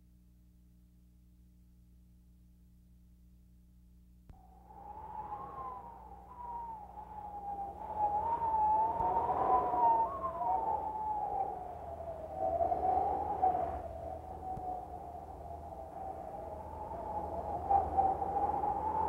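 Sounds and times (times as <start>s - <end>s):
wavering wailing tones: 4.4s - 19.0s.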